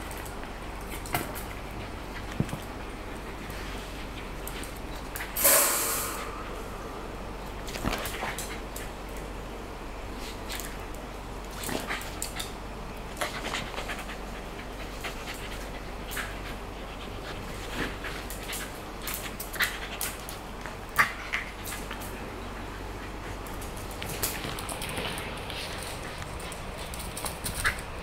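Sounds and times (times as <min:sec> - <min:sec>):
dog panting: 0:13.2 - 0:28.0.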